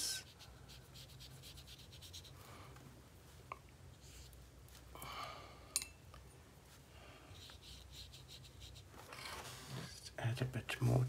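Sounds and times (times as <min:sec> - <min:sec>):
brush stroking across paper: 0:00.0 - 0:02.4, 0:06.7 - 0:10.0.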